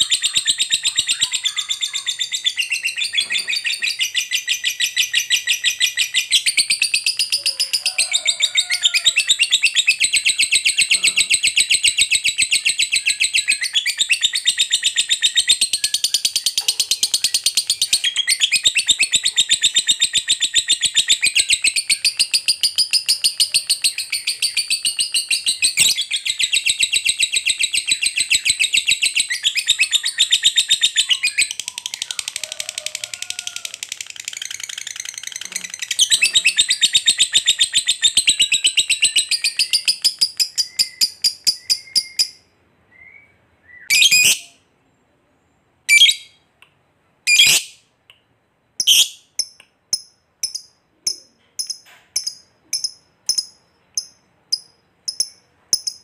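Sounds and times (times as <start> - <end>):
lovebird shrill chatter: 43.9 - 44.6, 45.9 - 46.3, 47.3 - 47.8, 48.8 - 49.3.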